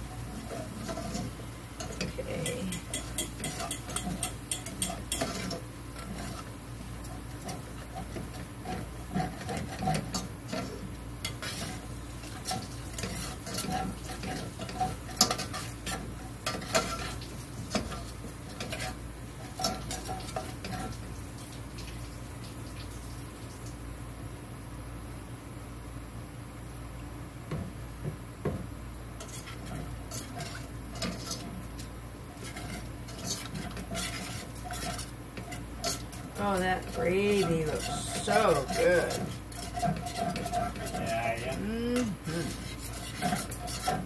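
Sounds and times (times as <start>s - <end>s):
whisk scraping metal skillet: 0.0s - 21.0s, 29.2s - 44.0s.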